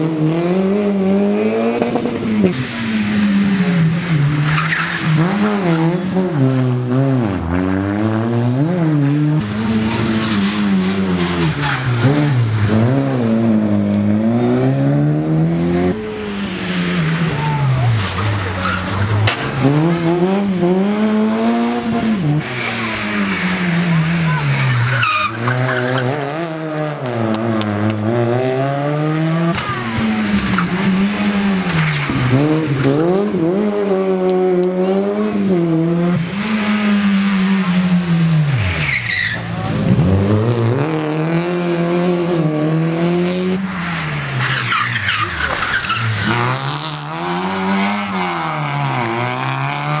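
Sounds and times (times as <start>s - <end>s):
rally car engines accelerating: 0.0s - 50.0s
tyre squeals and wheelspin: 4.4s - 5.8s, 17.2s - 19.2s, 22.6s - 26.6s, 38.6s - 39.6s, 44.0s - 50.0s.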